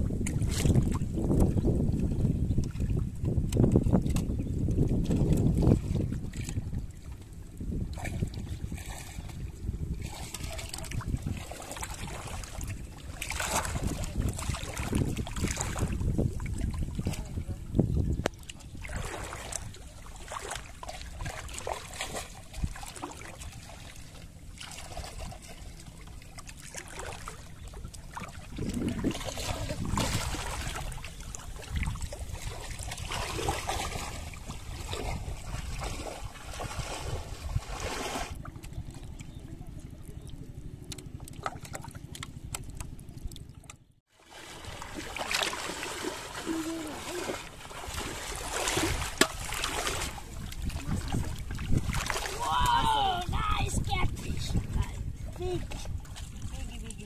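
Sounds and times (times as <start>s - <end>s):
water splashing as people wade: 0.0s - 57.0s
wind rumble on microphone: 0.0s - 57.0s.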